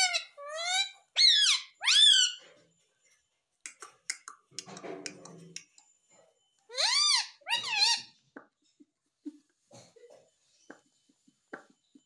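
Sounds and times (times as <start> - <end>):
parakeet squeaky calls: 0.0 - 2.4, 6.7 - 8.2.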